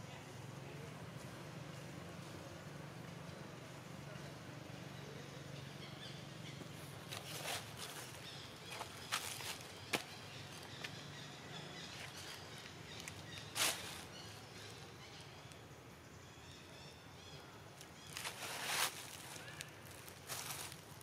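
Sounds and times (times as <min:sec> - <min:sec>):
faint outdoor background: 0:00.0 - 0:21.0
tree branches rustling: 0:06.8 - 0:15.6, 0:17.7 - 0:21.0.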